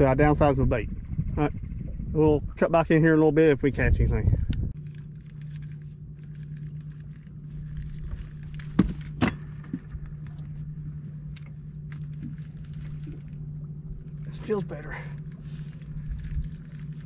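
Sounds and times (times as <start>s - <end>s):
boat motor humming: 4.7s - 17.0s
fishing reel clicking: 4.8s - 8.8s, 11.7s - 17.0s.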